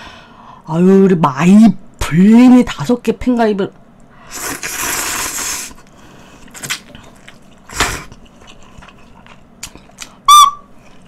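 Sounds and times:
person slurping soup: 4.2 - 5.9, 6.5 - 8.9
chewing: 6.4 - 10.2, 10.8 - 11.0.

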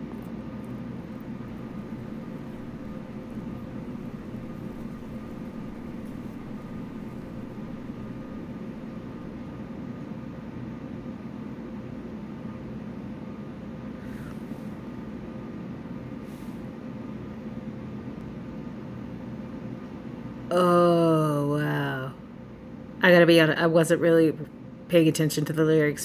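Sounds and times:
low hum: 0.0 - 10.5
steady hiss: 0.6 - 9.6.

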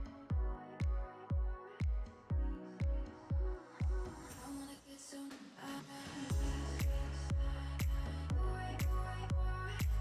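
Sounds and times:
electronic dance music: 6.3 - 9.0.

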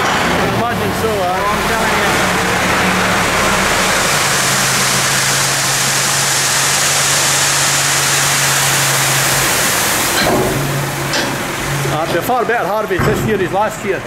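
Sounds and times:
tractor engine running: 0.0 - 14.0
grain pouring rushing hiss: 1.4 - 12.0.

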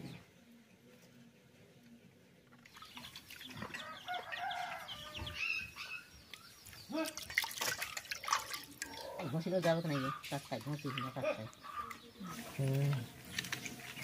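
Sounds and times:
water splashing in a bowl: 2.6 - 4.4, 6.8 - 11.2, 12.6 - 14.0
chickens clucking: 7.9 - 14.0.

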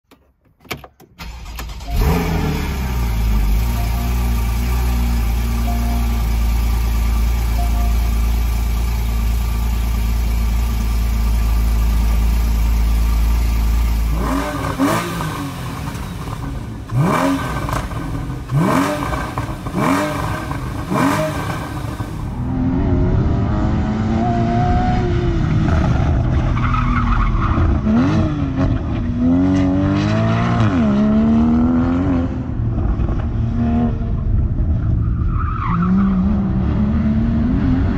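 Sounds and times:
car engine cold start: 1.0 - 8.9
car engine idling: 1.2 - 22.5
car engine revving: 1.2 - 34.7.

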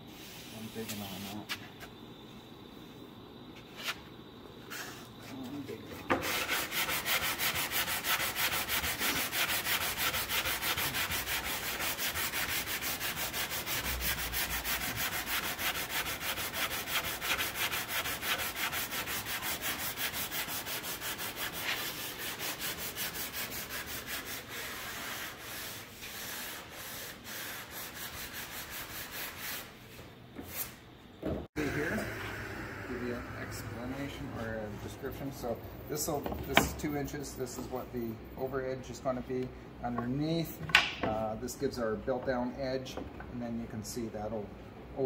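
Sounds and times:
hand sanding wood: 5.6 - 29.8.

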